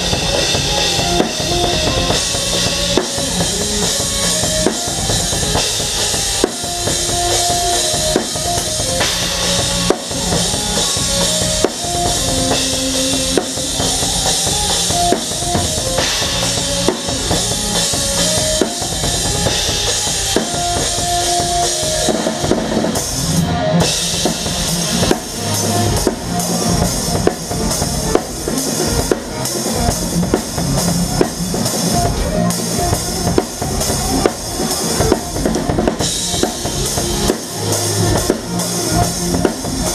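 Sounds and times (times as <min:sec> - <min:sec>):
drum kit playing: 0:00.0 - 0:39.9
live band music: 0:00.0 - 0:39.9.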